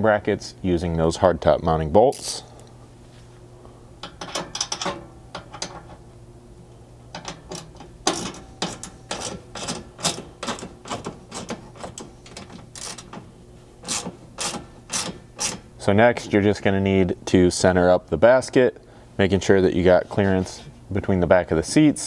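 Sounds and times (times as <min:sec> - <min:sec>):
hand ratchet clicking: 0:07.2 - 0:13.2, 0:13.8 - 0:15.6.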